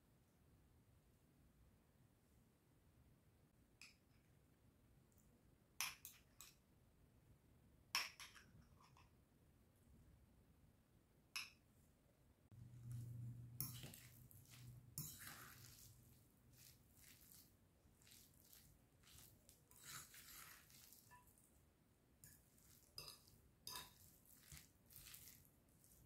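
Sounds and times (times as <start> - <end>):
soft squishing of food: 12.5 - 26.0
fork clinking on glass bowl: 13.6 - 15.9, 22.2 - 25.3.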